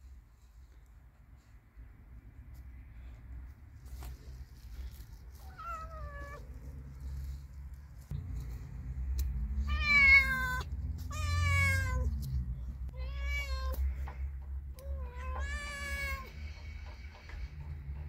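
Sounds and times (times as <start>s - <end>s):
cat meowing: 9.6s - 12.1s, 12.9s - 14.2s, 14.8s - 16.3s.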